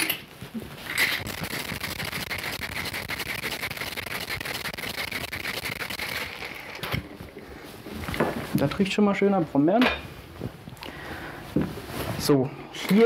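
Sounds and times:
ice rattling in cocktail shaker: 0:01.0 - 0:07.0.

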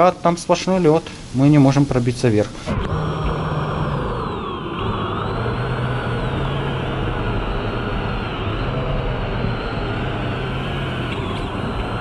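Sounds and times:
low steady hum: 0:01.0 - 0:12.0
electric thruster motor whine: 0:02.6 - 0:12.0.

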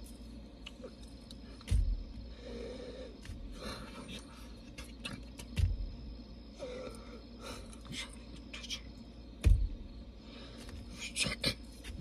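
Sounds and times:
hands rustling and tapping: 0:00.0 - 0:02.3, 0:04.6 - 0:06.0
dull thump: 0:01.6 - 0:02.3, 0:05.4 - 0:06.1, 0:09.4 - 0:10.0.

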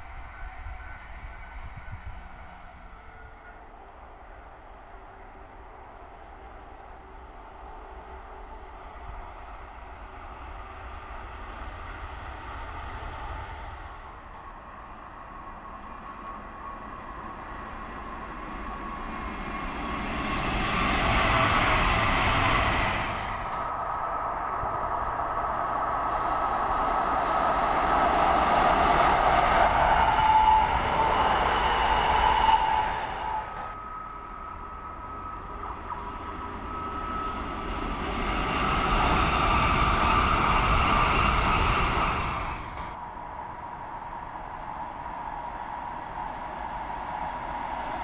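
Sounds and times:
train wheels rumbling on rails: 0:00.0 - 0:48.0
steady high whine: 0:11.0 - 0:48.0.

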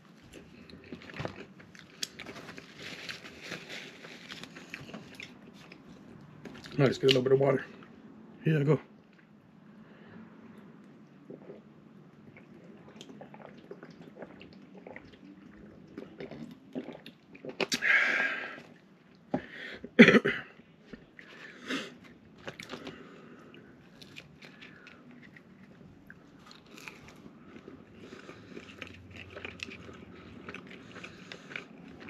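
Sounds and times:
chewing: 0:11.0 - 0:17.8, 0:22.0 - 0:32.0.

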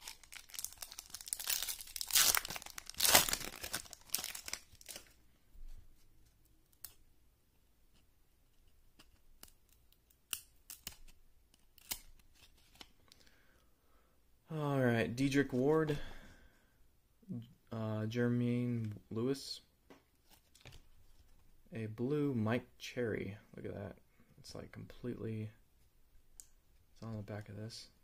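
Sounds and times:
foil wrapper tearing and crinkling: 0:00.0 - 0:05.1.

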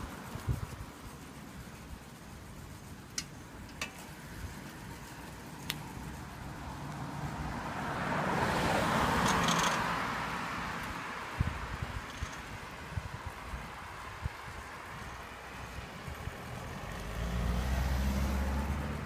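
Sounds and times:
car passing: 0:04.1 - 0:13.2, 0:13.8 - 0:19.0.

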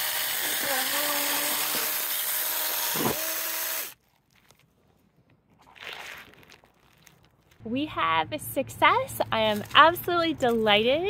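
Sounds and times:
electric chainsaw cutting wood: 0:00.0 - 0:04.0.

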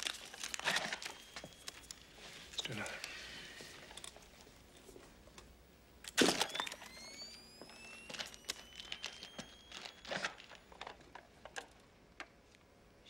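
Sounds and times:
camera shutter and flash: 0:06.1 - 0:10.6
flash recharging high whine: 0:06.1 - 0:10.9
small clicks: 0:06.1 - 0:12.6.

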